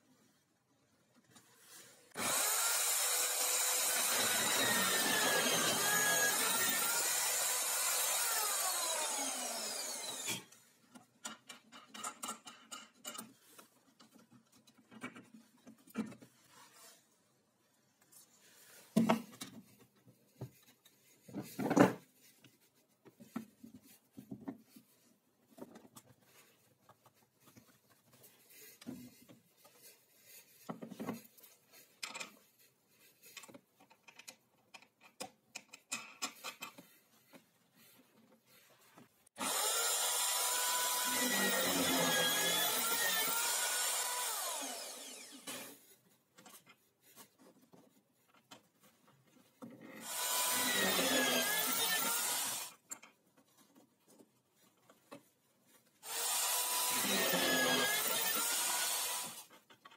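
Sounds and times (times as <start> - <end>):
electric drill running: 2.2 - 10.5, 39.4 - 45.8, 50.0 - 52.8, 56.0 - 59.5.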